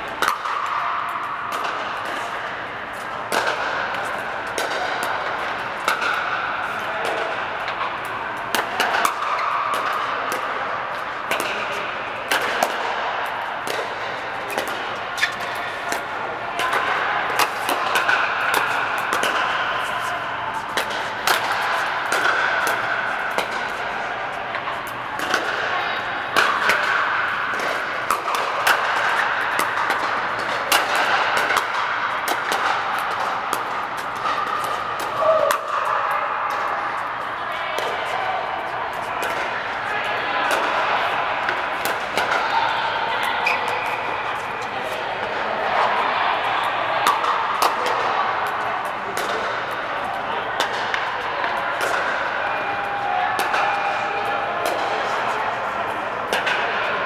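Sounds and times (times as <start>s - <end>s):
paddles hitting plastic ball: 0.1s - 2.4s, 3.0s - 25.7s, 26.4s - 36.8s, 47.0s - 52.2s
faint voices: 1.0s - 57.0s.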